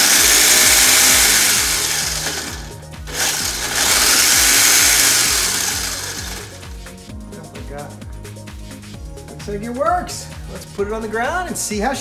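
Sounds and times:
toy car electric motor whirring: 0.0 - 6.7.

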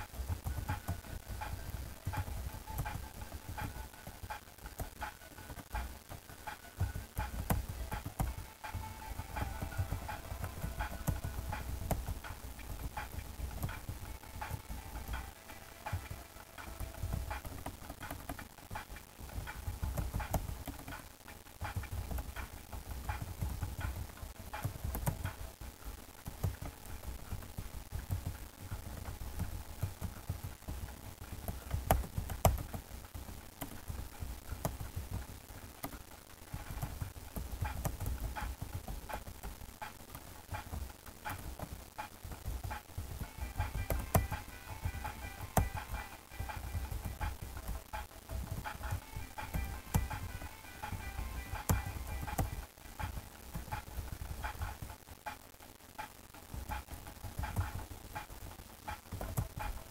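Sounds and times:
keyboard keys clicking: 0.1 - 25.5, 26.2 - 36.0, 36.6 - 54.9.

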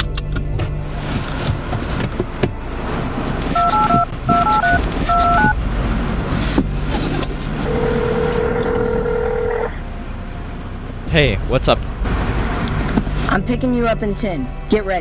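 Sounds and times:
low car rumble: 0.0 - 15.0
phone ringing tone: 3.5 - 5.6, 7.6 - 9.8
phone keypad beeps: 3.6 - 5.6.

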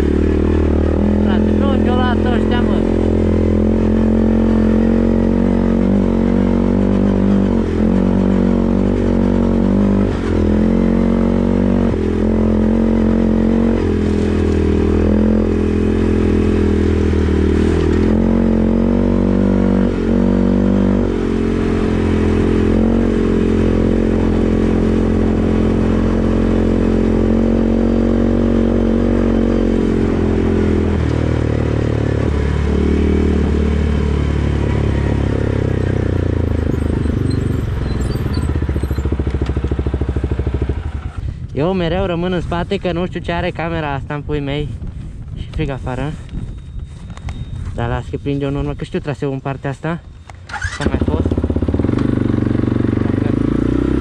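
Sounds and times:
atv engine running: 0.0 - 49.0, 49.8 - 54.0.

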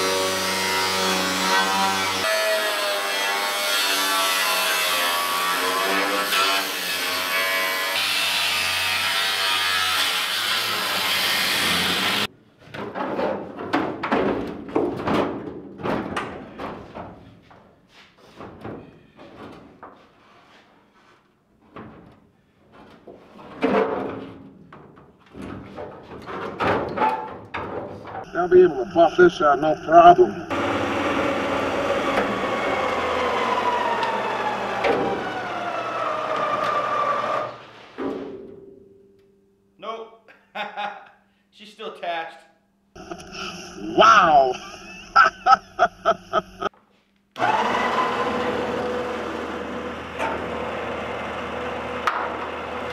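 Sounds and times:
angle grinder cutting steel: 0.0 - 12.3, 30.5 - 37.6
electric hoist motor whining: 30.5 - 37.8, 47.4 - 52.9.

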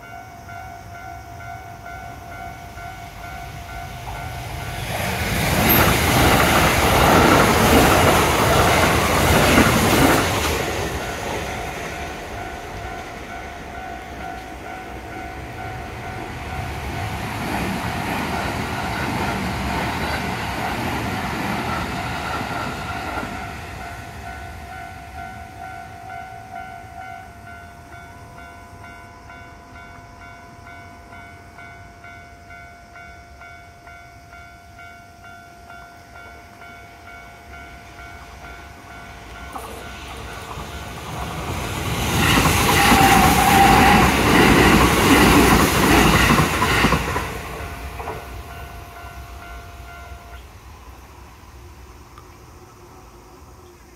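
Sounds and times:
level crossing warning bell: 0.0 - 4.8, 6.6 - 17.2, 22.7 - 41.0, 42.7 - 50.6
train running past: 0.0 - 53.9
train wheels clickety-clack: 4.7 - 15.0, 15.6 - 23.8, 39.4 - 48.5.

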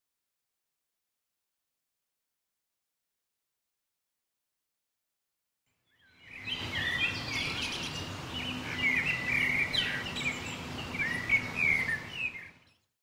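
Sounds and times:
outdoor background hiss: 5.7 - 12.9
birds chirping and singing: 5.9 - 12.9.

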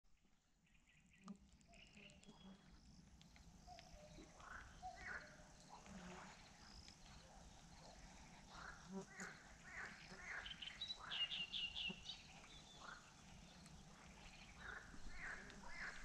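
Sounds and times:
birds chirping and trilling: 0.7 - 16.0.

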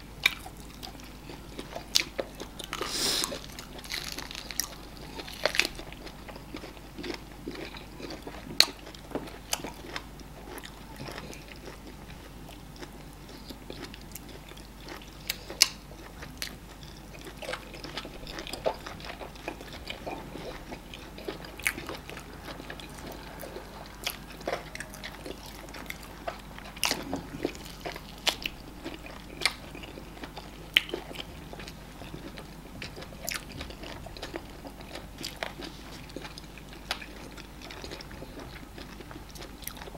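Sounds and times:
people chewing and biting: 0.1 - 39.9.

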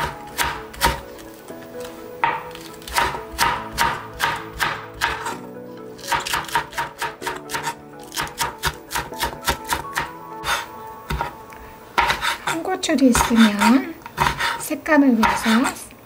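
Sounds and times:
knife chopping on cutting board: 0.0 - 1.0, 2.2 - 5.4, 6.0 - 11.3, 12.0 - 14.6, 15.2 - 15.8
soft background music: 0.0 - 16.0.

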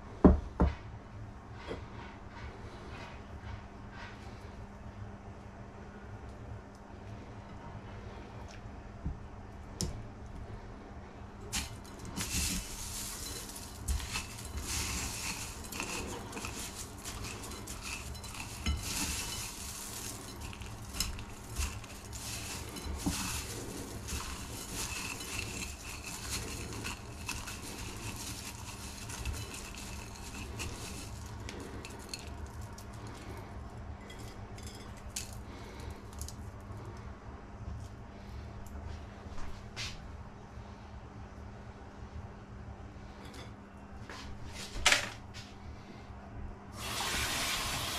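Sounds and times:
steady low hum: 0.0 - 46.8
cornflakes crackling in a bowl: 11.5 - 36.6.

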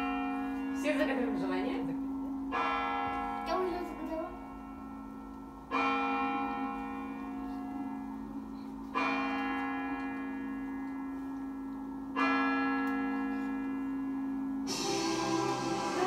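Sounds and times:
clock bell striking: 0.0 - 16.0.

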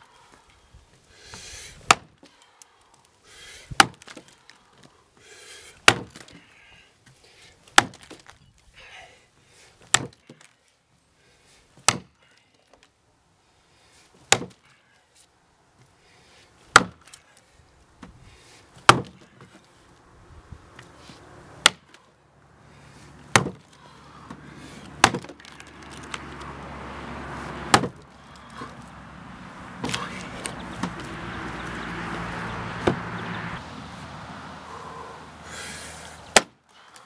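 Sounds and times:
axe striking log: 1.8 - 2.2, 3.7 - 4.2, 5.8 - 6.3, 7.7 - 8.2, 9.9 - 10.3, 11.8 - 12.2, 14.3 - 14.6, 16.7 - 17.2, 18.8 - 19.2, 21.6 - 22.0, 23.2 - 23.7, 24.3 - 26.3, 27.7 - 28.7, 29.8 - 31.1, 32.8 - 33.0, 36.3 - 36.6.

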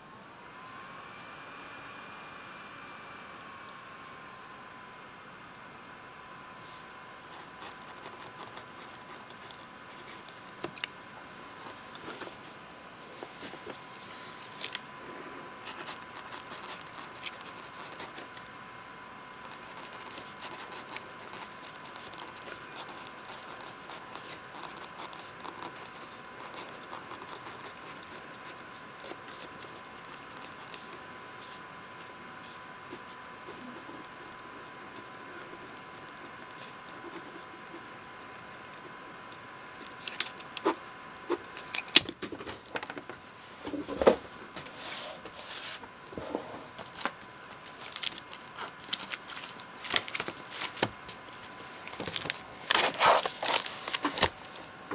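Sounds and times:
pen scratching on paper: 7.3 - 10.4, 15.6 - 18.3, 19.4 - 31.6.

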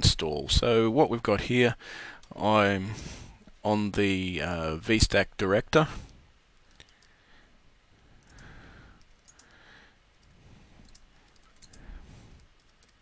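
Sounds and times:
faint keyboard typing: 6.6 - 7.2, 8.0 - 13.0.

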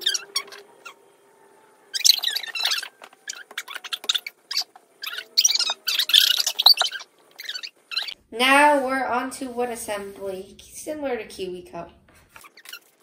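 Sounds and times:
wet plastic lid squeaking: 2.0 - 8.2, 12.4 - 13.0.

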